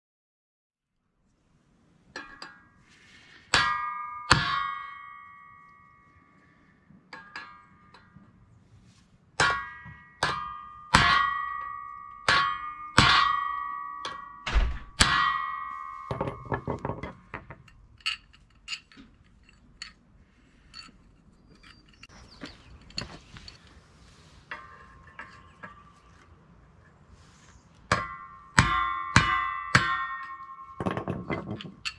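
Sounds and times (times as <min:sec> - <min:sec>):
hammer striking metal: 0:03.4 - 0:08.2, 0:09.4 - 0:17.6, 0:27.9 - 0:31.9.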